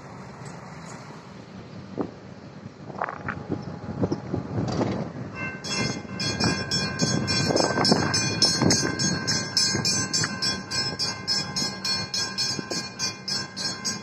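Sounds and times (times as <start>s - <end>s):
electronic warning bell: 5.4s - 14.0s
mechanical warning bell: 5.4s - 14.0s.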